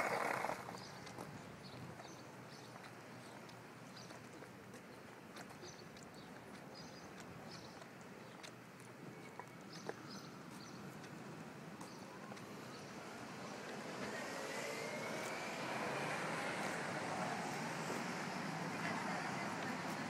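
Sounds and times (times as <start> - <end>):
vehicle engine approaching: 10.1 - 20.0
faint rising whine: 12.1 - 19.5.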